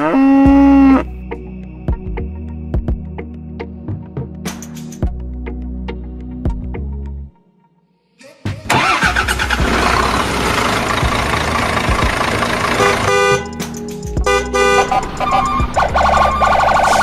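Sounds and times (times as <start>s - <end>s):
loud vehicle din: 8.8s - 17.0s
vehicle horn honking: 12.7s - 13.6s, 14.2s - 15.6s.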